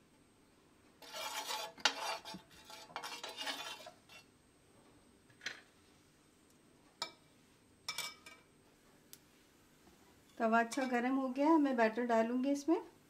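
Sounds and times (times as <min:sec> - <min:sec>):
steel spoon scraping a pan: 0:01.0 - 0:04.3, 0:10.3 - 0:11.0.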